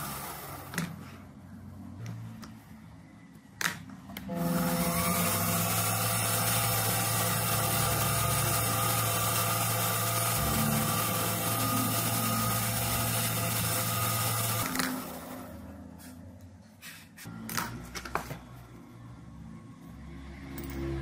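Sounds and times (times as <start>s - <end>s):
metal lathe motor hum and whine: 4.3s - 15.4s.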